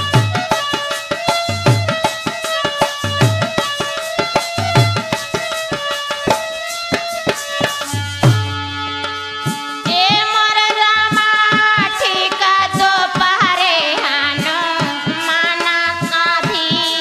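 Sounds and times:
hand drum folk rhythm: 0.0s - 17.0s
held melody line: 0.0s - 17.0s
woman singing folk song: 9.8s - 17.0s.

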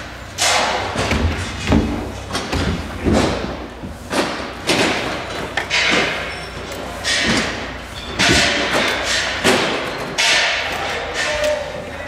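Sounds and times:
knocks and thuds: 0.4s - 6.2s, 7.0s - 10.6s.

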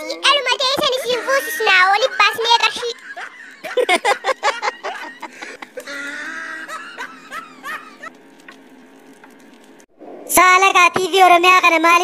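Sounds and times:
person laughing: 1.2s - 8.2s.

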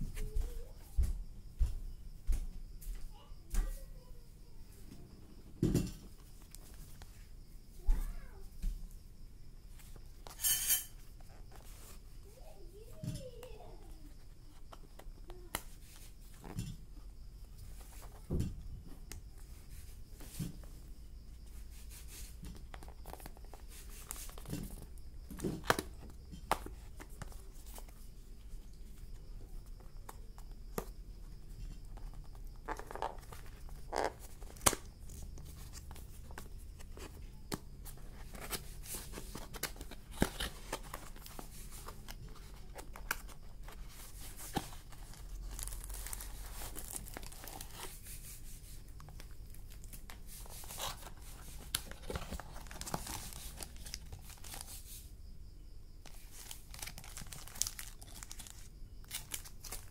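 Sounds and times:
card and paper rustling: 21.7s - 30.9s, 31.8s - 55.1s, 56.0s - 59.9s.

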